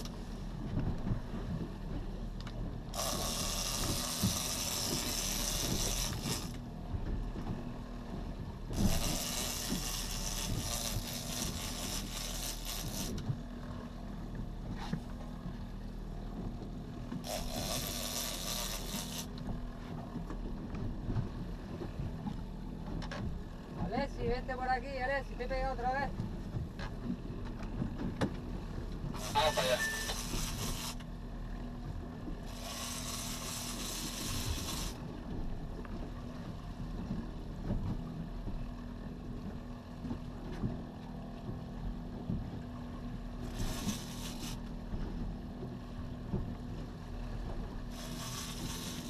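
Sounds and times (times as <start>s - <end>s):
boat engine idling: 0.0s - 49.0s
fishing reel whirring: 2.9s - 6.6s, 8.8s - 13.2s, 17.2s - 19.4s, 29.2s - 31.1s, 32.4s - 35.0s, 43.4s - 44.6s, 47.9s - 49.0s.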